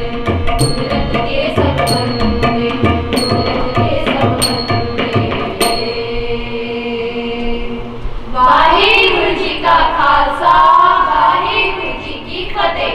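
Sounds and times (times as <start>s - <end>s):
tabla strokes: 0.0s - 6.5s
girls singing a hymn together: 0.0s - 12.9s.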